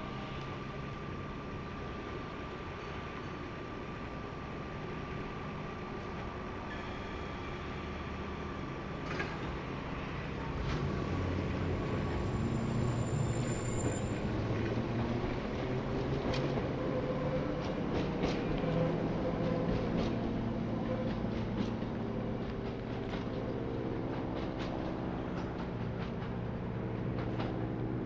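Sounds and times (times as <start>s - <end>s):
electric train rumbling: 0.0s - 28.0s
brief high squeal: 6.7s - 8.7s, 12.1s - 14.3s.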